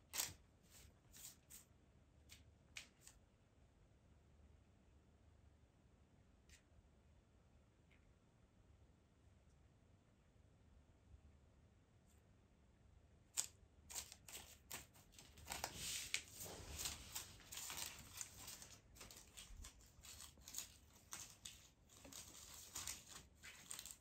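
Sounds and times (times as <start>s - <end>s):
dry crackling and rustling: 13.9s - 24.0s.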